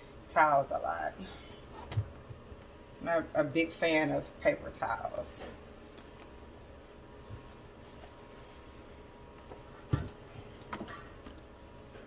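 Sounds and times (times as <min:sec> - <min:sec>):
cloth towels being handled: 0:05.8 - 0:10.6.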